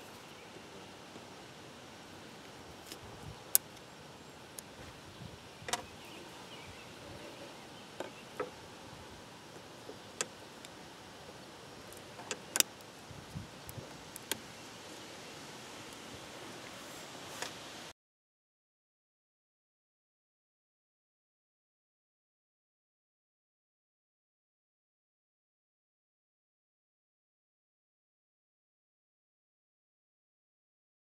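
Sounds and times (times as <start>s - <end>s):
steady background hiss: 0.0s - 17.9s.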